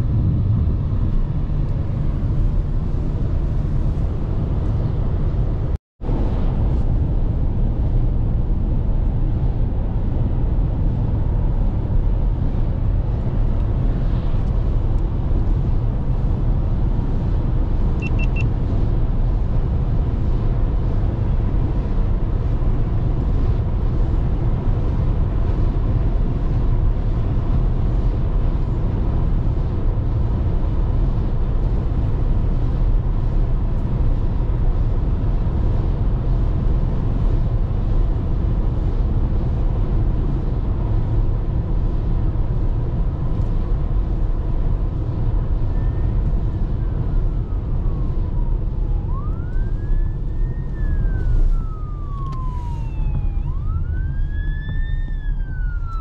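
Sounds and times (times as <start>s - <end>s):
car road rumble inside cabin: 0.0s - 56.0s
high triple beep: 18.0s - 18.5s.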